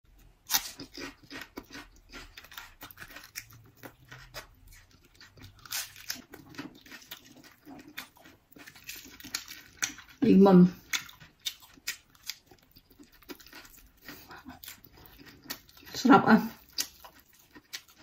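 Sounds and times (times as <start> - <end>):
chewing crunches: 0.4 - 10.2, 10.8 - 16.0, 16.6 - 18.0
lettuce crunching when bitten: 0.5 - 10.2.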